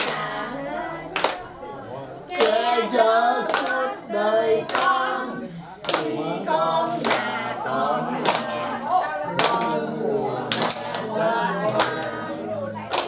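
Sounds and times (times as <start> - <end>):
people singing together: 0.0 - 13.0
hands clapping in time: 1.2 - 1.5, 3.5 - 3.8, 9.3 - 9.8, 10.5 - 11.1, 11.7 - 12.2.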